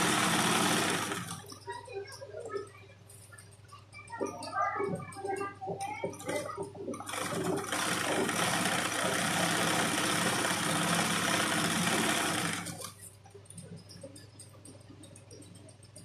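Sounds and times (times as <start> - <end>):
electric sewing machine running: 0.0 - 1.5, 7.1 - 12.9.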